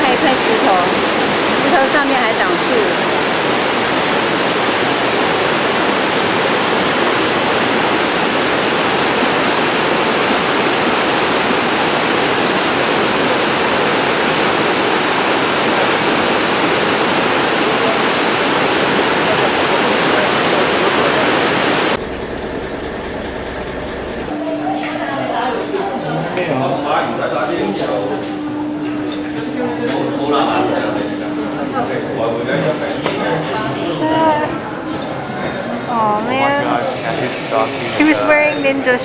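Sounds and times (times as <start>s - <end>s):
rushing water: 0.0s - 22.0s.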